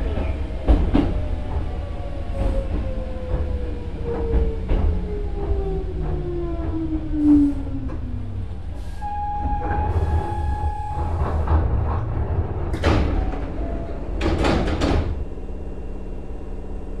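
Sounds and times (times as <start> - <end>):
train doors opening with air hiss: 8.6 - 15.2.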